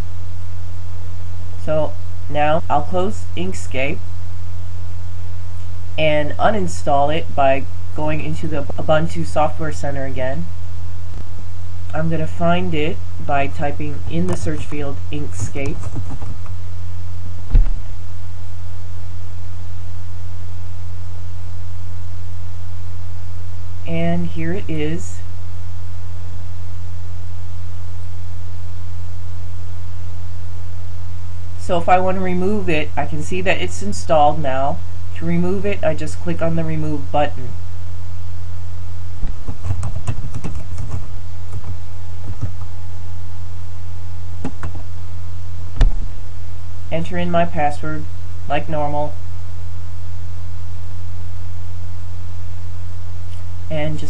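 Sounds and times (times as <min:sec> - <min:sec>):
low hum with hiss: 0:00.0 - 0:54.0
low thump: 0:17.5 - 0:17.8, 0:45.8 - 0:46.1.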